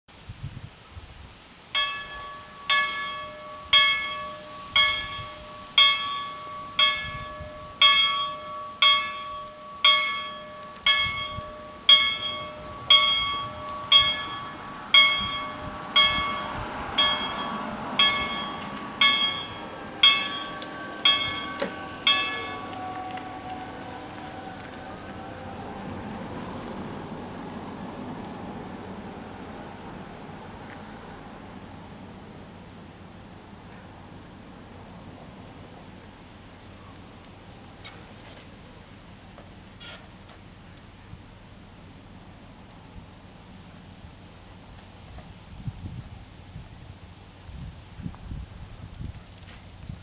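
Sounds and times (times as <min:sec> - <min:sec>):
level crossing bells ringing: 0:01.8 - 0:23.8.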